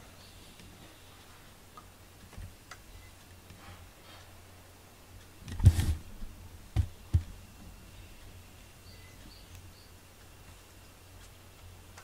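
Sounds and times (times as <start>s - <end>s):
dull thumps: 6.7s - 7.3s.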